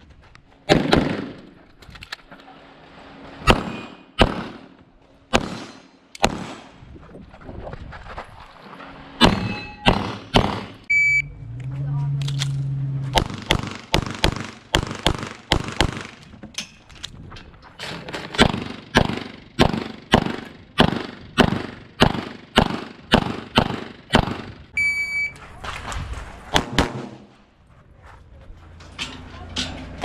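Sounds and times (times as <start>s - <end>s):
pistol shots: 0.7s - 1.4s, 3.5s - 4.7s, 5.3s - 6.7s, 9.2s - 10.8s, 13.2s - 16.2s, 18.3s - 24.5s, 26.5s - 27.3s
electronic shot timer beep: 10.9s - 11.3s.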